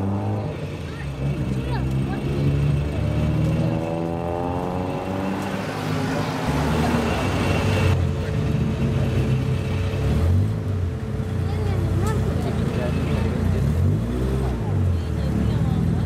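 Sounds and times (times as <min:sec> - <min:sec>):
car engine revving: 0:00.0 - 0:16.0.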